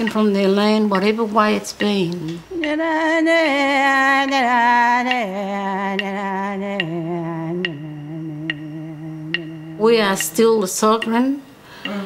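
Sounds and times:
person singing long notes: 2.1s - 10.5s
sharp taps: 5.9s - 11.3s.

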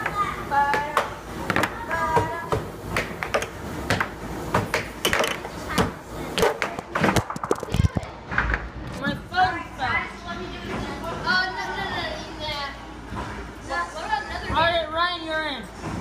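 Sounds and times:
air hockey puck clacking: 0.0s - 8.7s.

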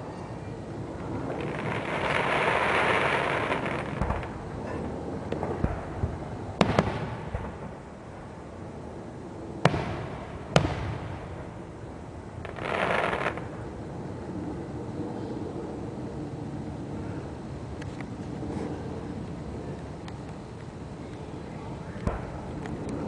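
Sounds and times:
fireworks hissing rush: 0.7s - 8.4s, 9.6s - 13.8s
fireworks bangs: 1.3s - 4.4s, 5.3s - 7.8s, 9.6s - 11.5s, 12.4s - 13.5s.

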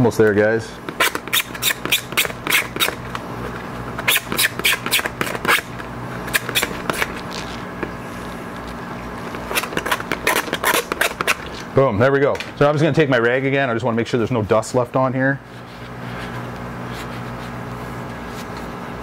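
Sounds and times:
screwdriver tip scratching: 0.9s - 3.0s, 4.0s - 5.7s, 6.3s - 7.6s, 9.5s - 11.6s.

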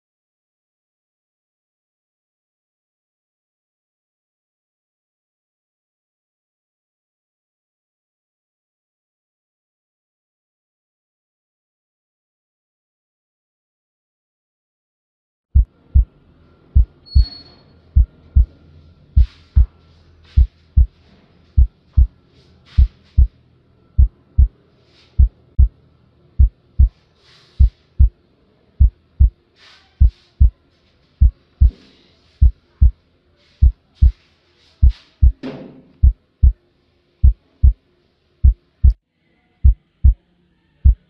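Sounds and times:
heartbeat double thump: 15.6s - 16.1s, 24.0s - 24.5s, 25.2s - 25.7s.

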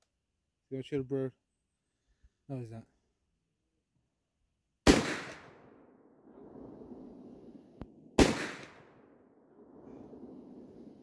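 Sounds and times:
rifle shot with rumbling echo: 4.8s - 11.0s.

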